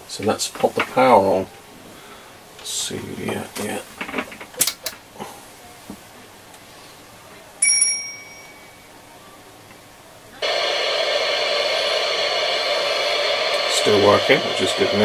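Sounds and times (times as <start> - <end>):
static hiss: 0.0 - 5.9, 10.2 - 15.0.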